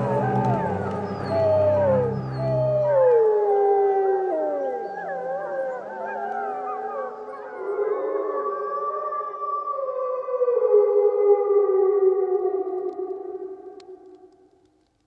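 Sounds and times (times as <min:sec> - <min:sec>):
low drone: 0:00.0 - 0:05.0
wolves howling: 0:00.0 - 0:13.8.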